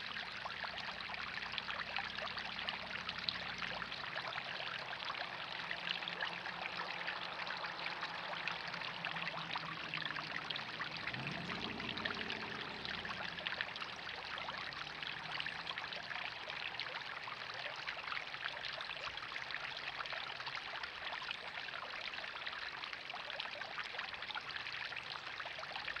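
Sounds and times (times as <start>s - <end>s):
water splashing into pond: 0.0s - 26.0s.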